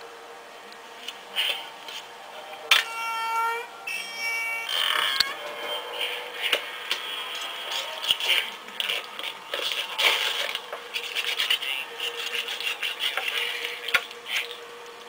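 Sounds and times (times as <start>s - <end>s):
faint steady hum: 0.0s - 15.0s
rough scraping and rubbing: 5.4s - 14.6s.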